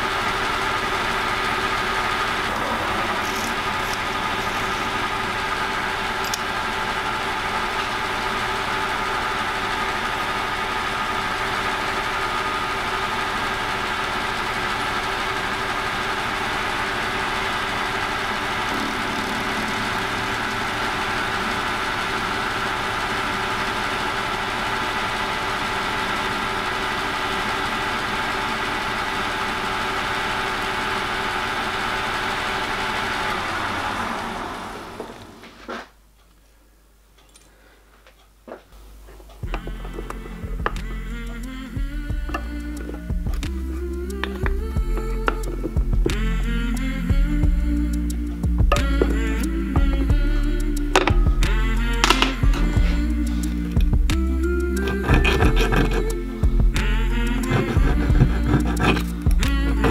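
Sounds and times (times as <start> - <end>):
metal lathe cutting steel: 0.0 - 35.4, 50.9 - 53.6, 54.6 - 56.4, 57.1 - 59.9
motor and gear whine: 0.0 - 35.7, 39.3 - 59.9.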